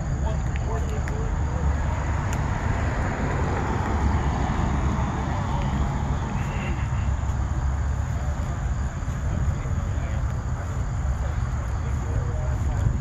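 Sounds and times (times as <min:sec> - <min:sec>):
steady low rumble: 0:00.0 - 0:13.0
faint voices: 0:04.0 - 0:13.0.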